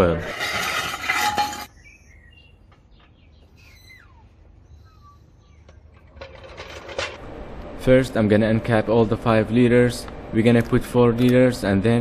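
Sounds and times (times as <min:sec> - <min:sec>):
faint bird chirps: 0:01.7 - 0:05.9.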